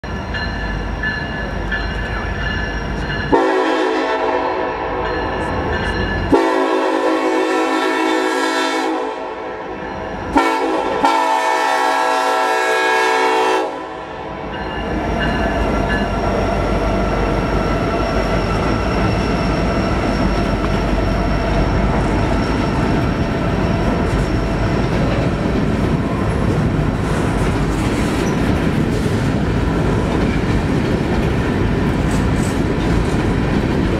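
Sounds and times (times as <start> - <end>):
train rumble: 0.0 - 33.9
train horn blasts: 3.3 - 5.2, 6.3 - 14.4
wheels clattering on rails: 14.5 - 33.9.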